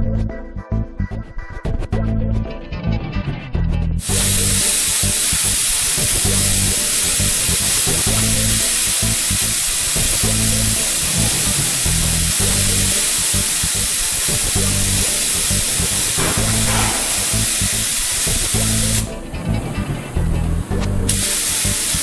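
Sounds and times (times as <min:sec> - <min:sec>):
background music with steady beat: 0:00.0 - 0:22.0
compressed air hissing from spray gun: 0:04.0 - 0:19.1, 0:21.1 - 0:22.0.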